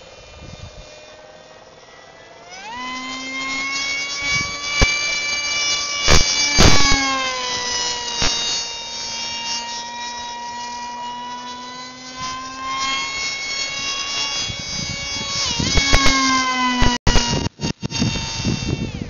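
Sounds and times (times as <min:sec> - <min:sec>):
electric motor and propeller whine: 0:00.0 - 0:19.0.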